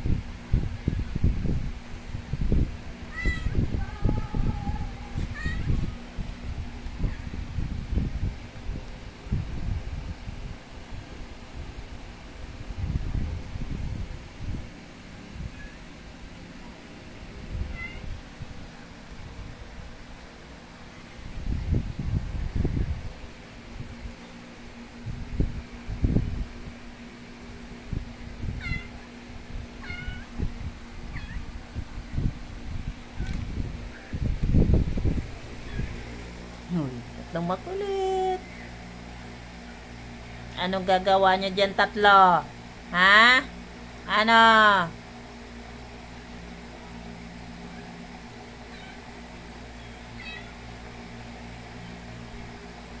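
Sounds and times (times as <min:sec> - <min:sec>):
steady low hum: 0:00.0 - 0:53.0
kitten mewing: 0:17.7 - 0:18.1, 0:28.6 - 0:28.9, 0:29.8 - 0:30.3, 0:50.2 - 0:50.6
kittens mewing: 0:28.6 - 0:29.0, 0:29.8 - 0:30.3, 0:48.7 - 0:49.1, 0:49.8 - 0:50.7.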